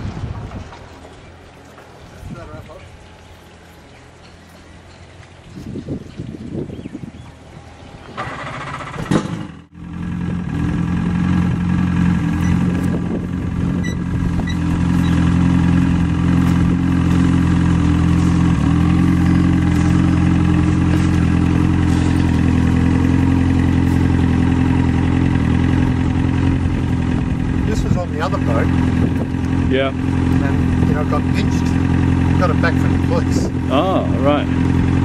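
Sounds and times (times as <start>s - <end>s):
engine idling: 7.1s - 35.0s.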